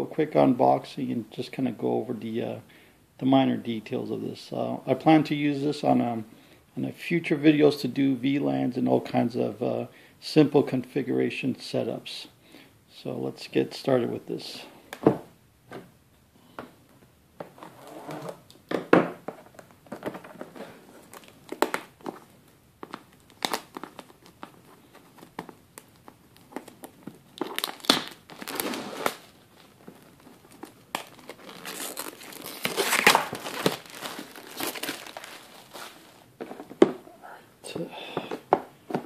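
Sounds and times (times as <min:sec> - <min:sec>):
plastic shrink-wrap tearing: 0:22.9 - 0:36.3.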